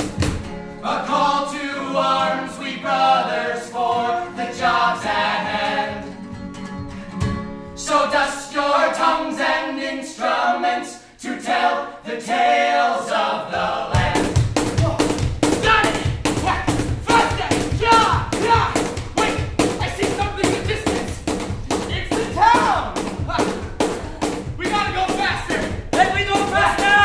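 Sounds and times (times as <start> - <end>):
acoustic guitar: 0.0 - 12.1, 13.5 - 27.0
voices singing in harmony: 0.8 - 6.2, 7.8 - 15.1
beat: 13.9 - 27.0.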